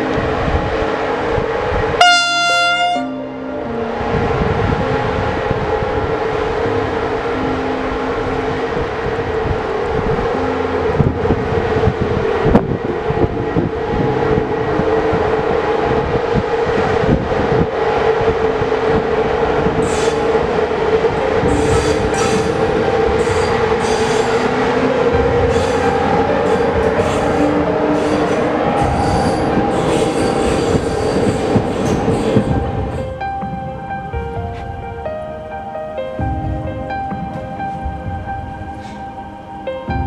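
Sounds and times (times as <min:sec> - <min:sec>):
electric locomotive hum: 0:00.0 - 0:40.0
train wheels clattering over rails: 0:19.6 - 0:34.8
high-pitched wheel squeals: 0:23.2 - 0:24.7, 0:25.5 - 0:32.8.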